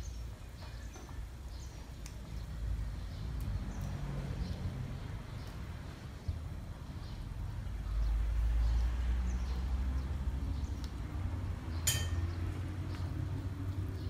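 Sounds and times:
metal ladle clinking on pot: 0:11.8 - 0:12.3.

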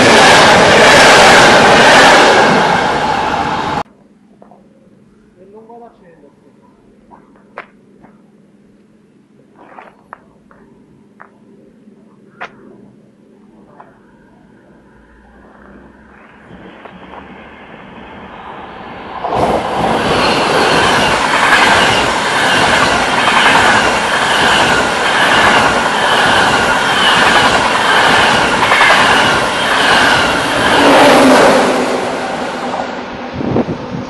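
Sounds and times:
high-speed train passing: 0:00.0 - 0:03.9, 0:10.9 - 0:34.0.

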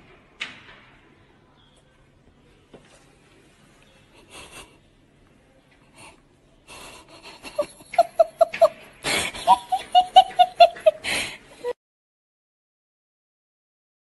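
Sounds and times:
person laughing in high bursts: 0:07.2 - 0:11.3
loud gasping breaths: 0:11.0 - 0:11.7.

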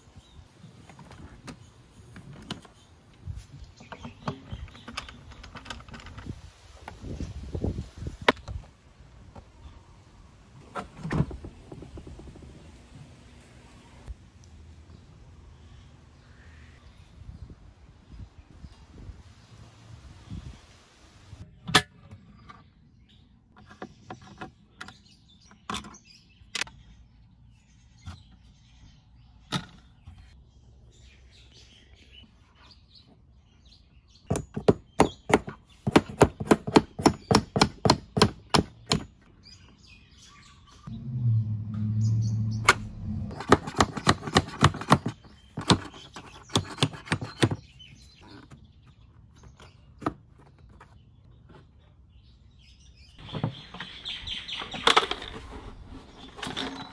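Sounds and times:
short low hum: 0:40.9 - 0:43.3.

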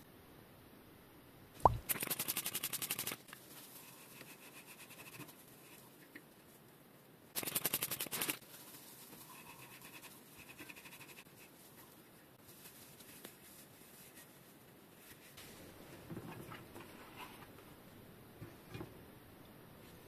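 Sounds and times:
faint handling noise: 0:11.4 - 0:20.0.

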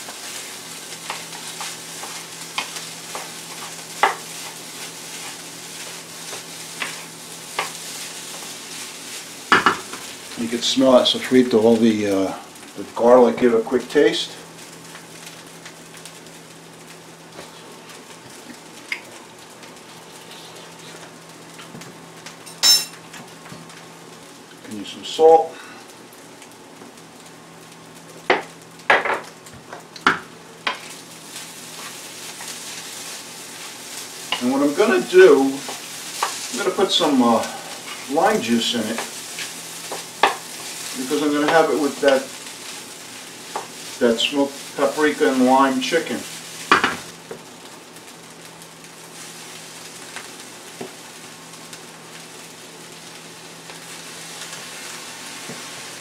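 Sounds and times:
rice and beans sizzling: 0:00.0 - 0:56.0
wooden spoon knocking on pan: 0:04.0 - 0:04.2.

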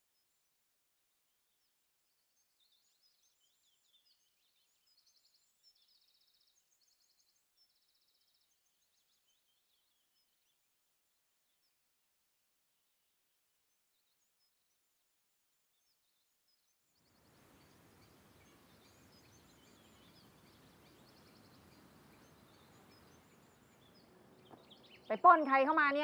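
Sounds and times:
small birds chirping and trilling: 0:00.1 - 0:11.8, 0:13.7 - 0:26.0.

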